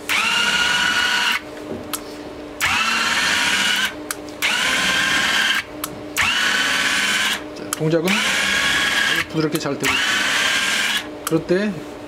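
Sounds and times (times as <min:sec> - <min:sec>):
electric gear motors whining: 0:00.0 - 0:01.4, 0:02.6 - 0:07.4, 0:08.0 - 0:11.1.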